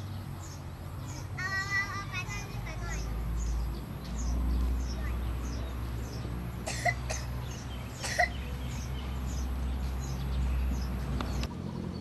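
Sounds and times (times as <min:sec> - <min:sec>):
small bird chirping: 0:00.0 - 0:12.0.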